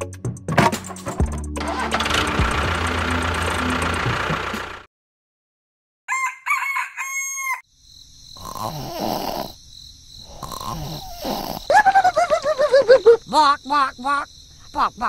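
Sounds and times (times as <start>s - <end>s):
rooster crowing: 6.1s - 7.7s
snoring: 8.4s - 9.6s, 10.2s - 11.7s
wavering cartoon-like voice: 12.9s - 15.0s.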